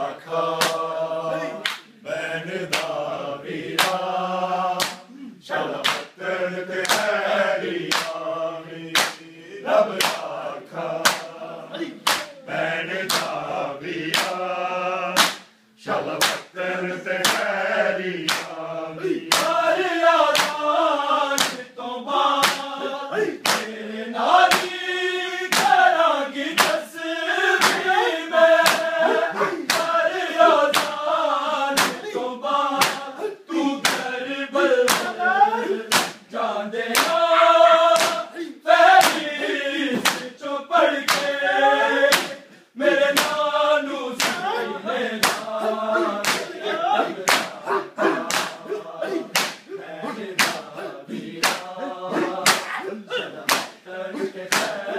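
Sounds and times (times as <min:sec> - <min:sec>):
men chanting in unison: 0:00.0 - 0:54.9
hands slapping chests: 0:00.6 - 0:00.9, 0:01.6 - 0:01.9, 0:02.7 - 0:03.0, 0:03.7 - 0:04.1, 0:04.8 - 0:05.1, 0:05.7 - 0:06.2, 0:06.8 - 0:07.2, 0:07.8 - 0:08.2, 0:08.9 - 0:09.2, 0:09.9 - 0:10.3, 0:11.0 - 0:11.4, 0:12.0 - 0:12.4, 0:13.1 - 0:13.4, 0:14.0 - 0:14.4, 0:15.2 - 0:15.5, 0:16.1 - 0:16.5, 0:17.1 - 0:17.5, 0:18.2 - 0:18.6, 0:19.2 - 0:19.6, 0:20.2 - 0:20.6, 0:21.3 - 0:21.7, 0:22.3 - 0:23.7, 0:24.4 - 0:24.8, 0:25.5 - 0:25.8, 0:26.6 - 0:26.8, 0:27.6 - 0:27.9, 0:28.6 - 0:31.0, 0:31.8 - 0:34.1, 0:34.8 - 0:35.2, 0:35.9 - 0:36.3, 0:36.9 - 0:37.3, 0:37.9 - 0:38.3, 0:38.9 - 0:39.3, 0:40.0 - 0:40.3, 0:41.1 - 0:41.4, 0:42.0 - 0:42.4, 0:43.1 - 0:43.4, 0:44.2 - 0:49.7, 0:50.4 - 0:50.7, 0:51.3 - 0:54.9.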